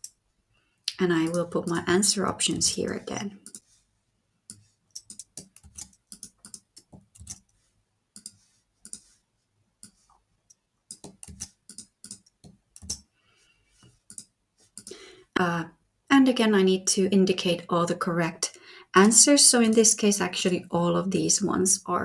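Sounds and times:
computer keyboard typing: 1.2 - 3.7, 4.5 - 7.5, 8.2 - 9.1, 10.9 - 13.0, 14.0 - 14.9.

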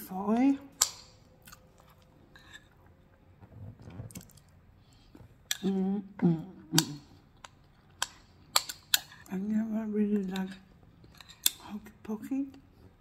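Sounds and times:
soft chewing: 0.8 - 5.8, 6.8 - 9.4, 10.0 - 13.0
metal spoon scraping ceramic bowl: 2.3 - 2.7, 10.1 - 11.6.

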